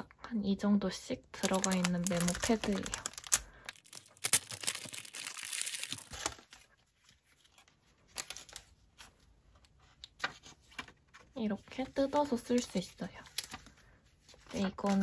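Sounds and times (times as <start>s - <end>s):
plastic wrapping tearing and crinkling: 1.4s - 6.8s
paper taps and rustles: 8.3s - 12.7s.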